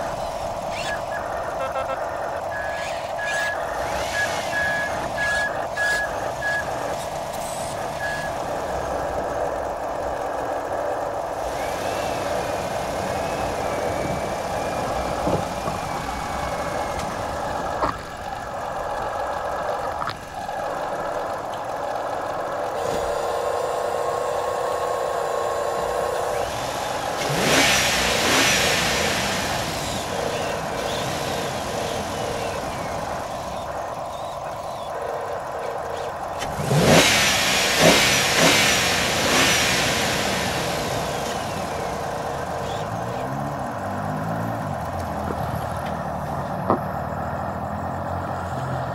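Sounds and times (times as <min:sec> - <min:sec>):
rushes of noise: 0:00.0 - 0:24.1
toy motors and gears whining: 0:00.0 - 0:48.9.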